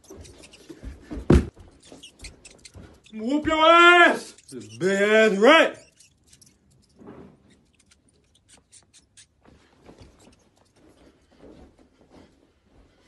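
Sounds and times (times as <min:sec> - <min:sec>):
footsteps on carpet: 0:00.0 - 0:03.6, 0:09.4 - 0:13.0.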